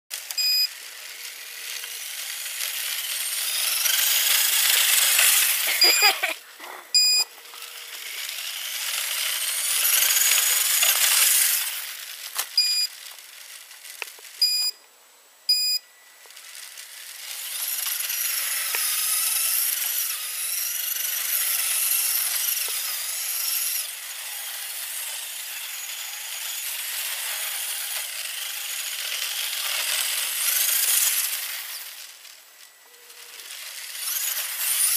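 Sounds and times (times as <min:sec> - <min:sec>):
electric motor whining: 0:00.1 - 0:14.4, 0:16.0 - 0:34.9
tyres hissing through snow: 0:05.2 - 0:06.9.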